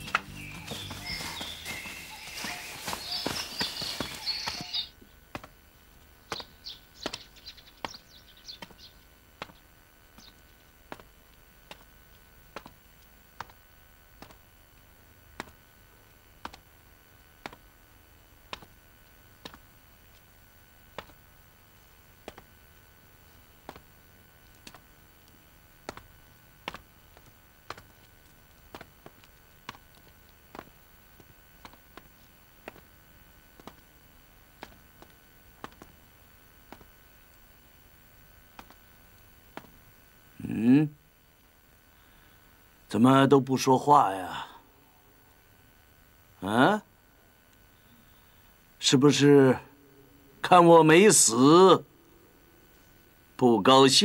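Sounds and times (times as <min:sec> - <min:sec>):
footsteps on hard floor: 0:00.0 - 0:04.8, 0:26.7 - 0:32.9, 0:33.6 - 0:33.8, 0:34.5 - 0:36.0, 0:36.7 - 0:36.9, 0:38.6 - 0:38.8.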